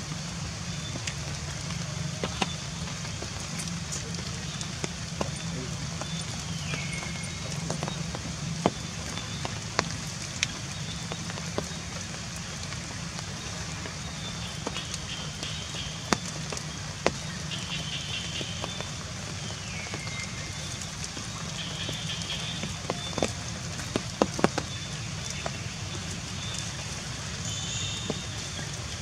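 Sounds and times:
rain dripping on vegetation: 0.0s - 29.0s.

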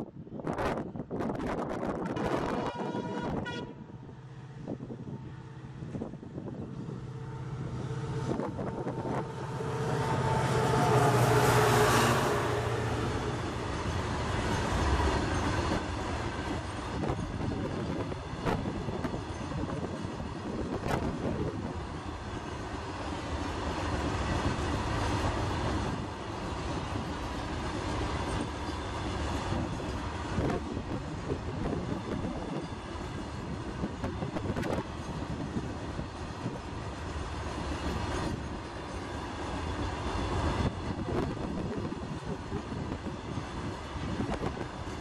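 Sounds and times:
train wheels rumbling on rails: 0.0s - 45.0s.

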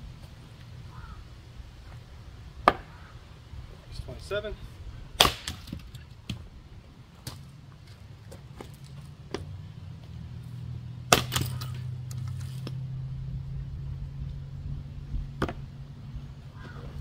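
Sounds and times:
steady low hum: 0.0s - 17.0s
splitting tool striking firewood: 11.1s - 11.8s.

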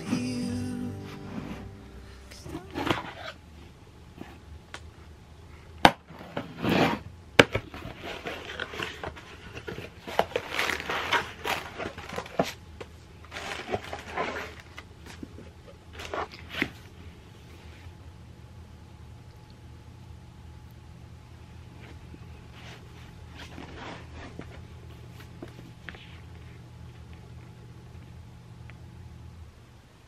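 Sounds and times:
cardboard flaps scraping and rustling: 6.1s - 12.6s, 13.2s - 16.9s
plastic wrapping rustling: 7.7s - 16.8s.

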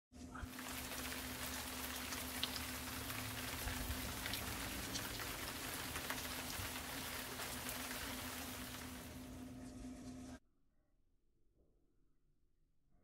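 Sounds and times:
pottery wheel humming: 0.2s - 10.4s
wet clay hissing and ticking: 0.3s - 9.4s.

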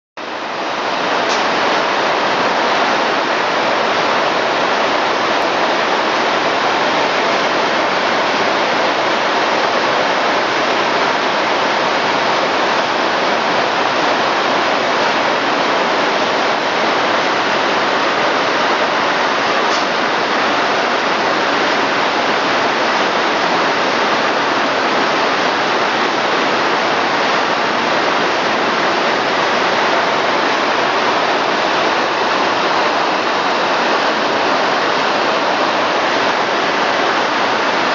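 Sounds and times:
can conveyor line rushing: 15.7s - 37.9s.

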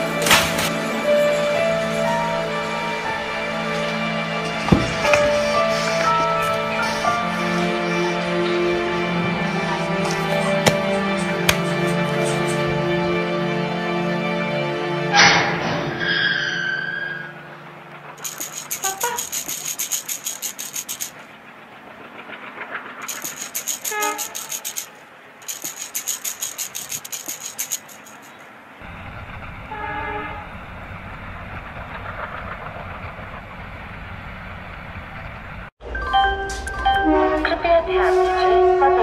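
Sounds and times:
low train rumble: 0.0s - 16.1s, 17.0s - 25.5s, 28.0s - 39.0s
train clickety-clack: 4.4s - 8.1s, 9.2s - 12.8s, 18.0s - 35.7s
train horn toot: 29.7s - 30.6s, 36.9s - 39.0s.

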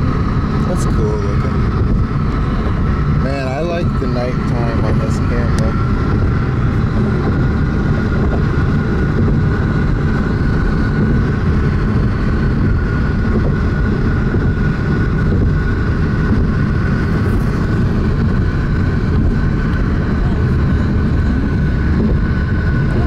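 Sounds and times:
car road and engine rumble: 0.0s - 23.0s
faint steady whine: 0.0s - 23.0s.

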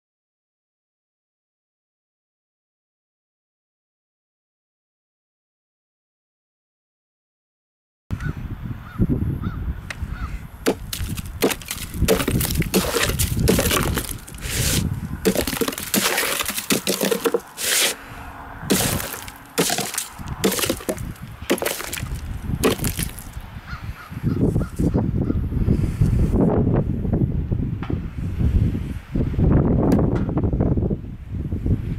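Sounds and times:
ice cracking into chips: 10.7s - 18.0s, 18.7s - 23.4s
knife chopping ice on board: 10.7s - 18.0s, 18.7s - 23.3s.

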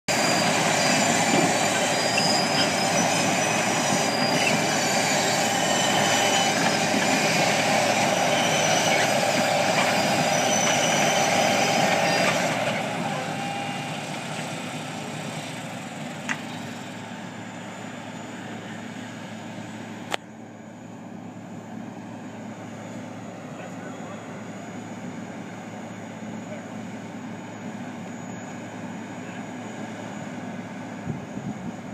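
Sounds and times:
high metallic squeals: 0.1s - 14.0s, 27.5s - 28.6s
trencher machine working: 0.1s - 15.4s.

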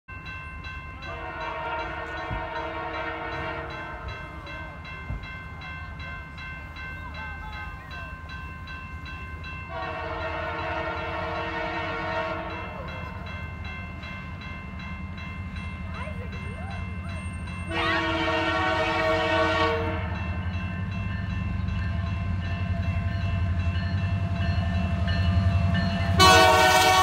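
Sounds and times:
crossing warning bell ringing: 0.1s - 27.0s
locomotive horn blasts: 1.1s - 4.0s, 9.7s - 12.8s, 17.6s - 20.4s, 26.1s - 27.0s.

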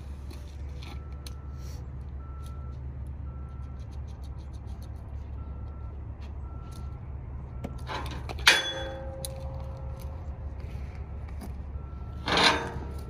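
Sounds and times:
idling vehicle hum: 0.0s - 13.0s
faint repeating beep: 5.4s - 7.9s
metallic clank with ringing: 7.8s - 9.6s, 12.2s - 13.0s.

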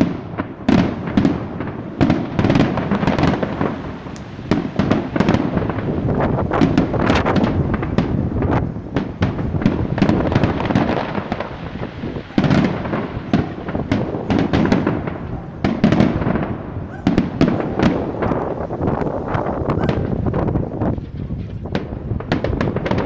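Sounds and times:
firework shells bursting: 0.0s - 23.0s.

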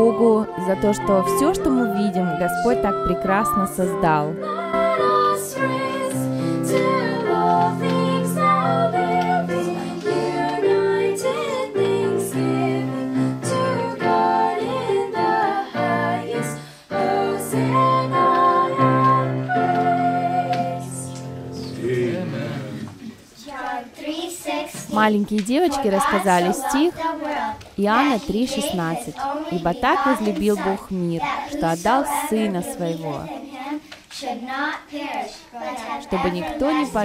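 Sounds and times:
instrumental accompaniment: 0.0s - 23.7s
girls singing together: 0.0s - 37.0s.

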